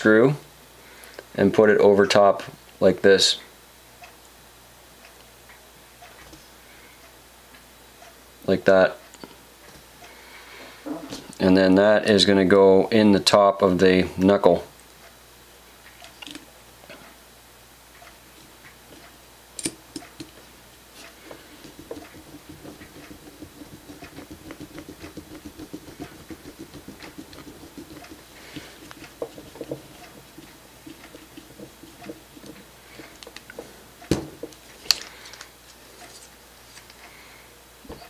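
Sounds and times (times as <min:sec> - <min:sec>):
screw ticking and scraping: 0:21.0 - 0:33.7
tool knocking on parts: 0:21.3 - 0:34.6.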